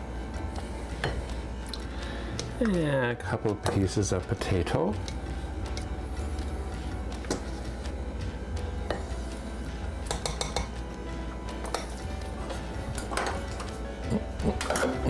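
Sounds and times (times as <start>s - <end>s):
steady low hum: 0.0s - 2.8s, 4.3s - 15.0s
utensil clinking against crockery: 10.0s - 10.8s, 11.6s - 13.8s, 14.5s - 15.0s.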